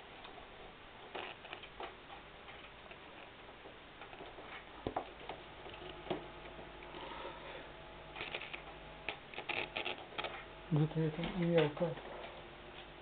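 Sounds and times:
record needle clicks and crackle: 0.0 - 7.0, 7.7 - 13.0
low hum: 5.2 - 13.0.

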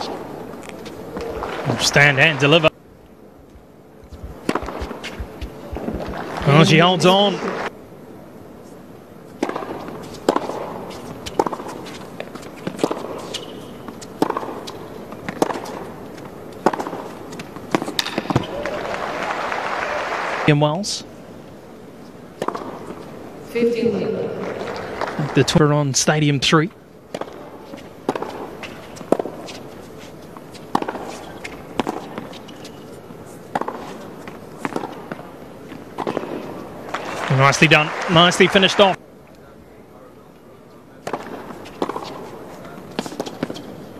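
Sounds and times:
tennis ball bouncing on court: 3.5 - 6.8, 9.4 - 18.7, 22.4 - 23.1, 27.1 - 37.1, 41.0 - 43.8
tennis ball struck by rackets: 4.1 - 6.7, 9.4 - 15.8, 16.6 - 18.5, 22.4 - 23.0, 27.1 - 29.6, 30.5 - 32.8, 33.5 - 34.0, 34.6 - 37.1, 41.0 - 42.2.

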